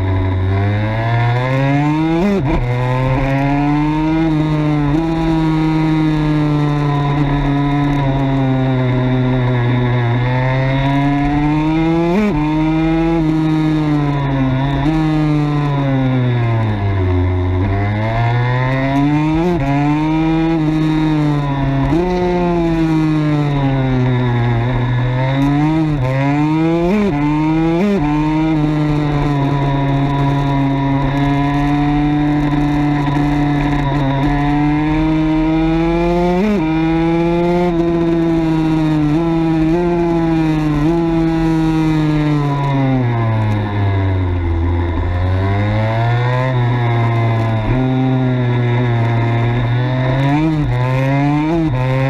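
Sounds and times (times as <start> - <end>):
two-stroke motorcycle engine racing: 0.0 - 52.0.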